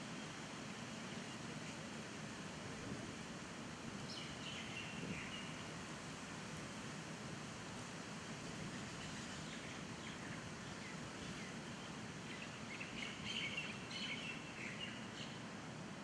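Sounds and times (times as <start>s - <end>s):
outdoor background hiss: 0.0s - 16.0s
birds chirping: 8.8s - 15.4s.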